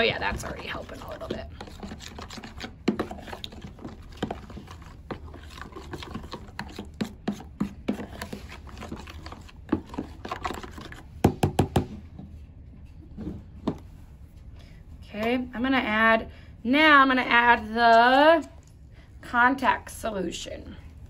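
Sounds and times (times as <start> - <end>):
metal spoon stirring slime: 0.0 - 11.8
spoon scraping plastic tub: 0.0 - 12.2.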